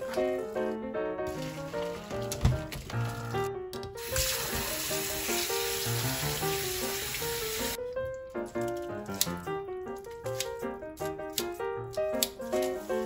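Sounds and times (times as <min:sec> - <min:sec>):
background music: 0:00.0 - 0:13.0
water running into strainer in sink: 0:04.0 - 0:07.8.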